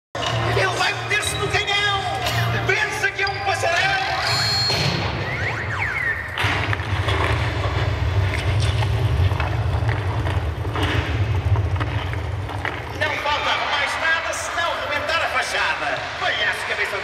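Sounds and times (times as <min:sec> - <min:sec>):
swooping whistle-like glides: 0:04.2 - 0:06.4
deep continuous rumble: 0:06.4 - 0:13.9.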